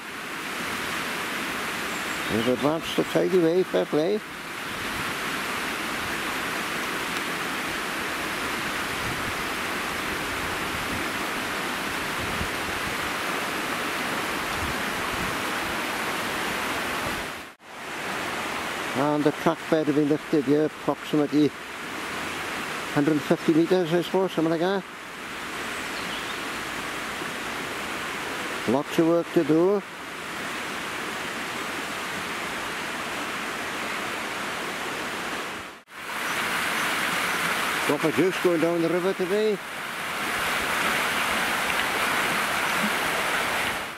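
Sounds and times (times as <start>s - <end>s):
river water rushing: 0.0s - 43.9s.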